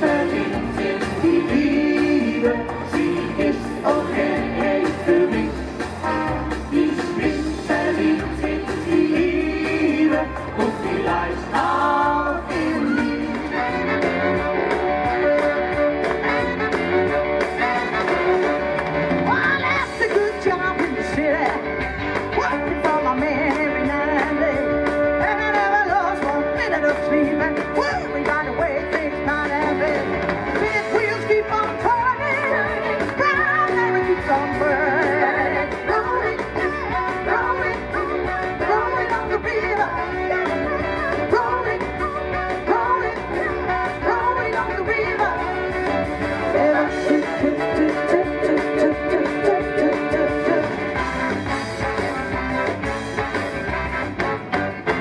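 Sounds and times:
instrumental backing music: 0.0s - 55.0s
woman singing into microphone: 22.4s - 45.6s.

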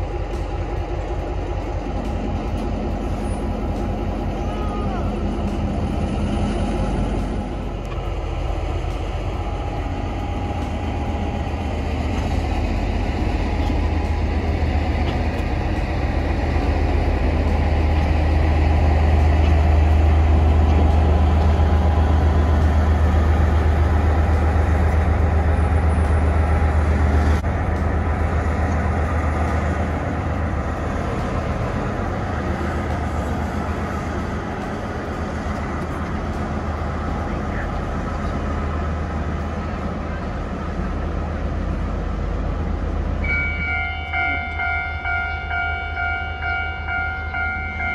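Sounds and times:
locomotive engine humming: 0.0s - 47.9s.

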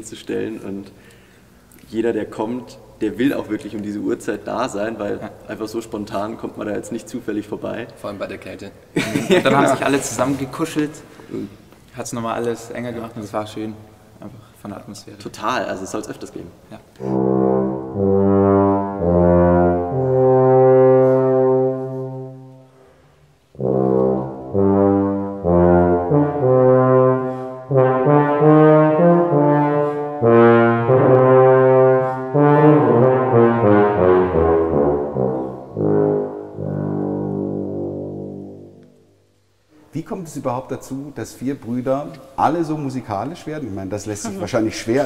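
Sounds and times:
solo tuba melody: 16.9s - 39.2s.

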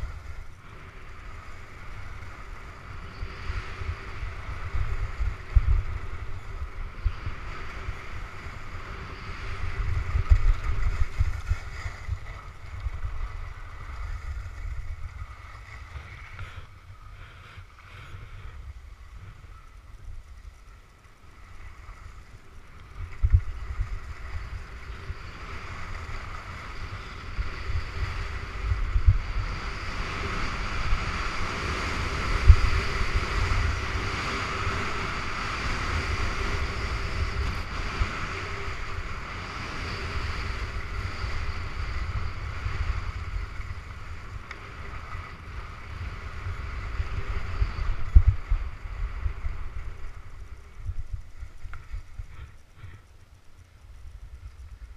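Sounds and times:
skis scraping on snow: 0.0s - 19.7s
wind rumbling on microphone: 0.0s - 54.9s.

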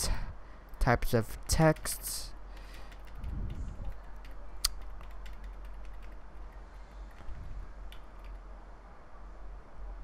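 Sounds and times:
low electrical hum: 0.0s - 10.0s
mouse scroll wheel ticking: 2.5s - 8.4s.

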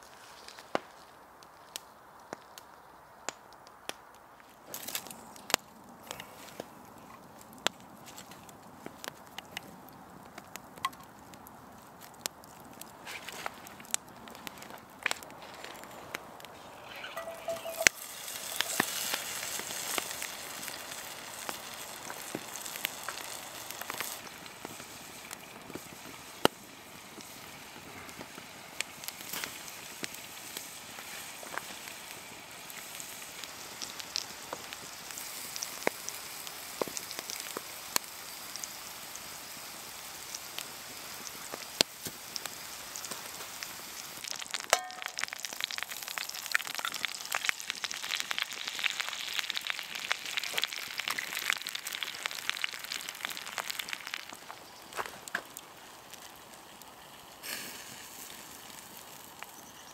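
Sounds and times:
food sizzling: 15.8s - 59.9s.

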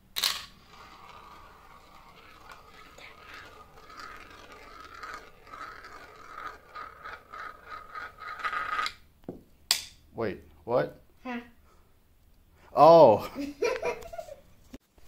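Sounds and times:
marble clicks and rattles: 0.2s - 9.0s
marbles rolling in plastic bowl: 0.2s - 9.1s.

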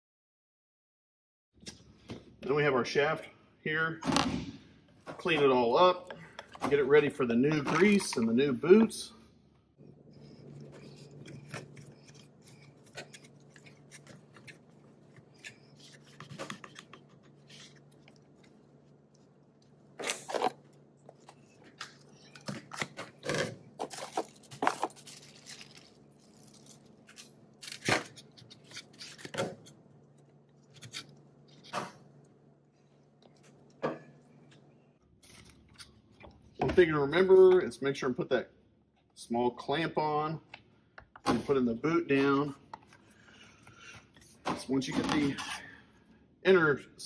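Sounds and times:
steady low hum: 1.7s - 47.0s.

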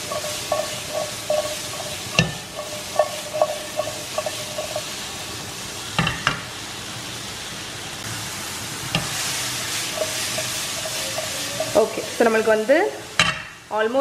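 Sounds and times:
pan knocking on burner grate: 0.0s - 4.9s
food sizzling in butter: 0.0s - 14.0s.

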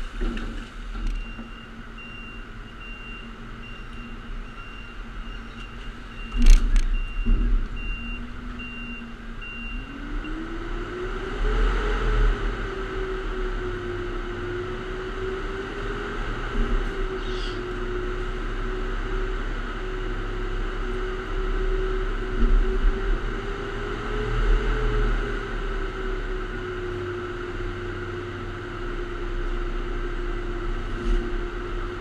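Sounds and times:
backup alarm beeping: 1.1s - 10.4s
loud clunk: 6.3s - 7.8s.

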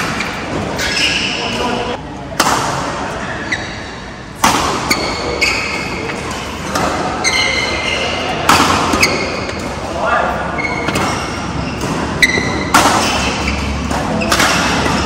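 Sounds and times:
shoes squeaking on court: 0.0s - 2.0s, 3.1s - 4.0s, 4.8s - 9.7s, 10.5s - 15.0s
racket hitting shuttlecock: 2.4s - 3.2s, 4.4s - 7.6s, 8.4s - 9.8s, 10.7s - 15.0s.

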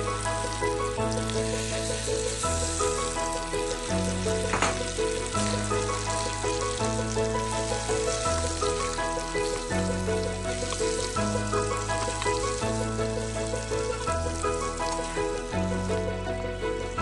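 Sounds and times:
paste sizzling in hot oil: 0.0s - 17.0s.

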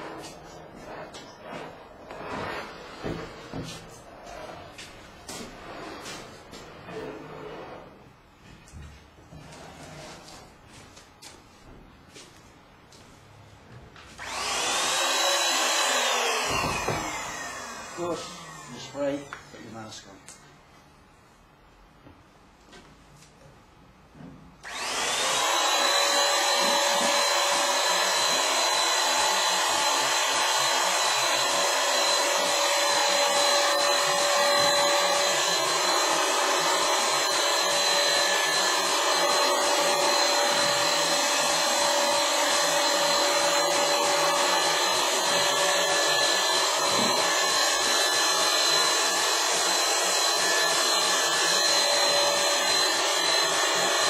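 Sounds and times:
paint sprayer whining: 14.2s - 19.4s, 24.6s - 54.0s.

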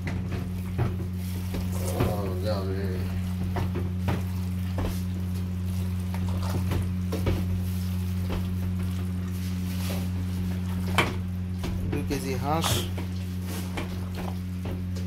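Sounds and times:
steady low hum: 0.0s - 15.0s
hand squelching raw meat: 0.6s - 11.6s.

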